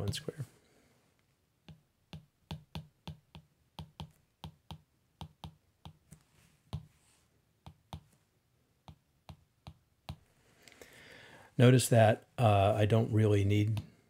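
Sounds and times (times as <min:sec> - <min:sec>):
stylus tapping on tablet screen: 0:00.0 - 0:00.3, 0:01.6 - 0:07.0, 0:07.6 - 0:08.2, 0:08.8 - 0:10.3.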